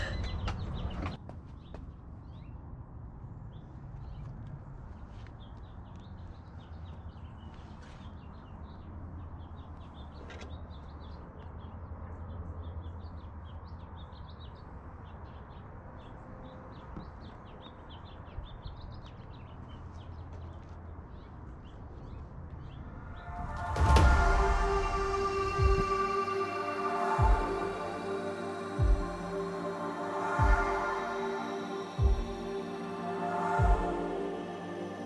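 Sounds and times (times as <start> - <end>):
small birds chirping: 0.0 - 2.7, 3.4 - 23.6.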